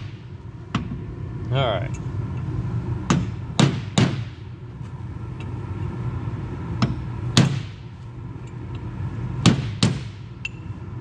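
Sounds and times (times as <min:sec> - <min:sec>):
low steady hum: 0:00.0 - 0:11.0
hammer striking steel punch: 0:03.1 - 0:04.4, 0:06.8 - 0:07.8, 0:09.4 - 0:10.6.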